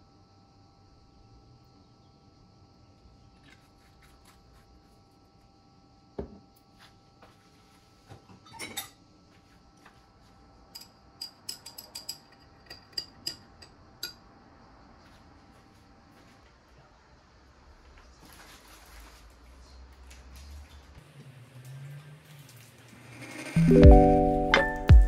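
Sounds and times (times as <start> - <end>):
glass bottle set down on counter: 6.2 - 6.4.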